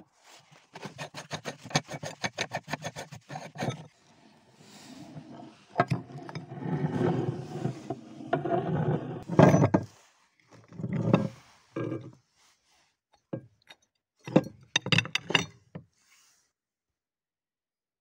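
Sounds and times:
scraping through crumbs: 0.3s - 3.9s.

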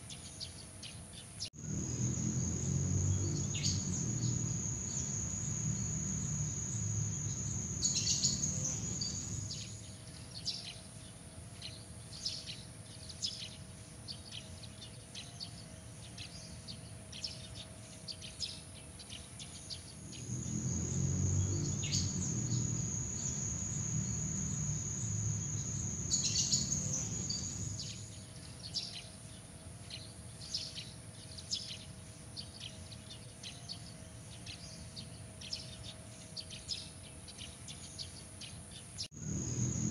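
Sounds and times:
low rumble: 1.6s - 9.6s
high-pitched insect trill: 1.6s - 9.8s, 20.0s - 28.2s, 39.2s - 39.9s.

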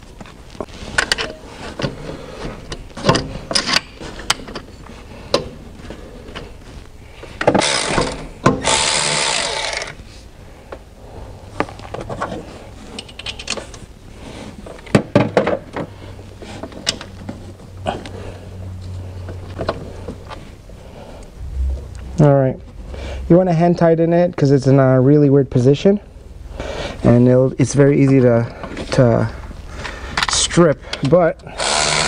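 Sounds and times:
electric ratchet running: 7.5s - 10.0s, 31.6s - 32.0s.

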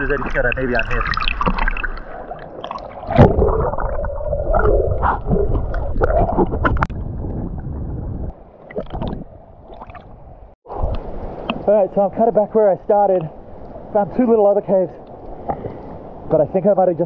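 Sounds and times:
water splash: 0.0s - 7.8s
bubbles gurgling: 0.0s - 10.1s
underwater water rushing: 0.0s - 11.7s.

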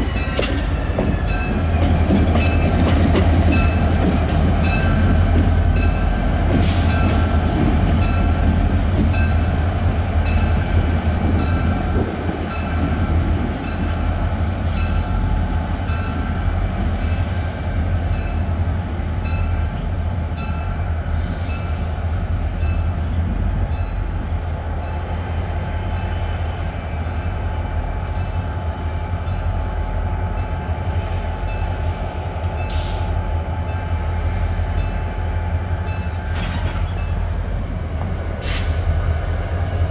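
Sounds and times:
locomotive bell ringing: 0.0s - 4.0s, 4.6s - 6.3s, 6.9s - 9.6s, 13.6s - 17.2s, 18.1s - 18.6s, 19.2s - 20.9s, 34.7s - 37.3s.

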